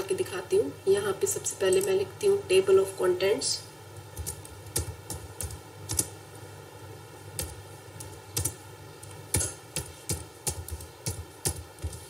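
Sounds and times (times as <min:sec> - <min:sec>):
keyboard typing clicks: 0:04.2 - 0:06.1, 0:07.4 - 0:12.0.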